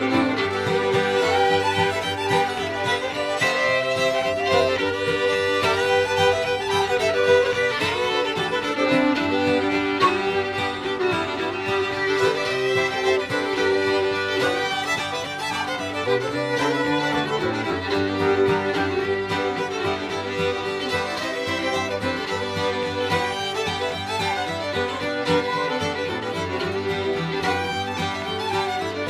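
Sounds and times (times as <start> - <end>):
fiddles playing lively tune: 0.0 - 29.0.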